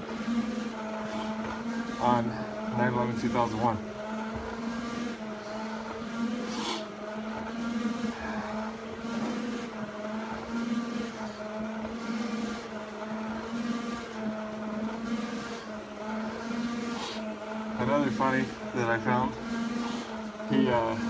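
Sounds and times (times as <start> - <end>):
machine hum: 0.0 - 21.0
hard breathing through a mask: 1.0 - 1.4, 6.4 - 7.0, 19.7 - 20.3.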